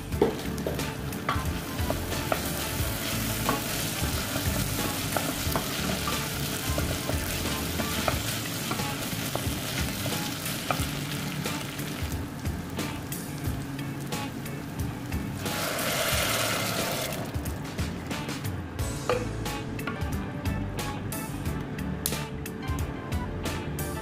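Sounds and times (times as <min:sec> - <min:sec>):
onions sizzling in pot: 0:00.0 - 0:17.6
wooden spoon knocking pot: 0:00.2 - 0:02.5.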